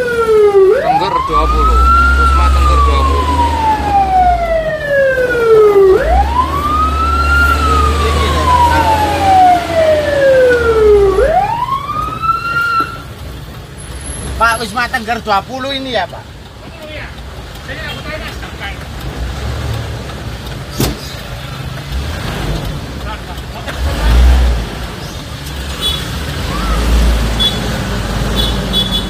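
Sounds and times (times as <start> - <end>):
fire truck siren wailing: 0.0 - 13.2, 26.2 - 27.5
engine and road rumble: 0.0 - 29.0.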